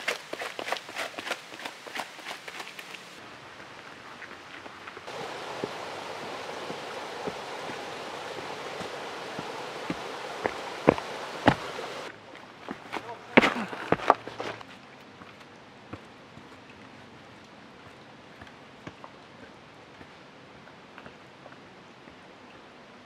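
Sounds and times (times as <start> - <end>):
steady background hiss: 4.8 - 14.6
boots stepping on stone trail: 5.1 - 16.0.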